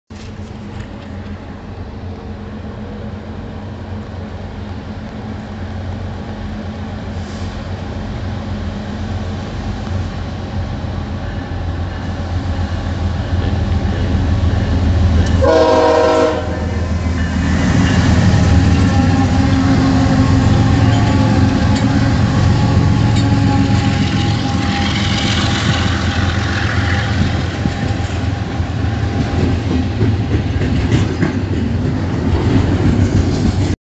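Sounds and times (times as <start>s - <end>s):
diesel locomotive engine drone: 0.1s - 33.8s
locomotives rumbling past: 0.2s - 33.8s
train horn blast: 15.2s - 17.0s, 18.2s - 28.1s.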